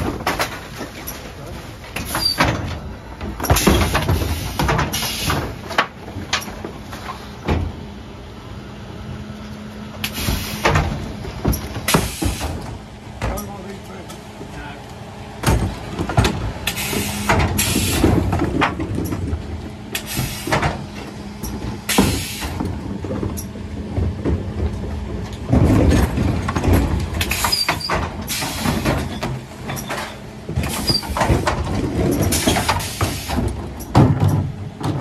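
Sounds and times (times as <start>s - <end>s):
wheelie bins banging and rattling: 0.0s - 8.0s, 9.9s - 14.7s, 15.3s - 35.0s
truck engine and hydraulics hum: 0.0s - 35.0s.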